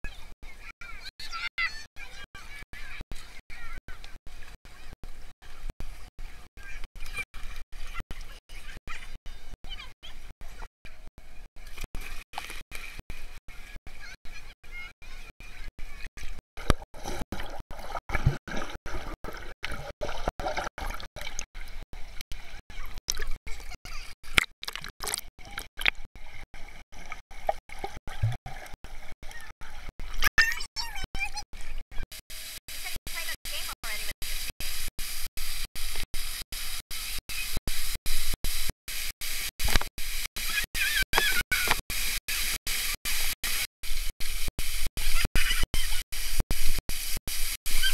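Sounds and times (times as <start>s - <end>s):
water gurgling and sloshing: 0.0s - 47.9s
child squealing: 40.5s - 41.7s.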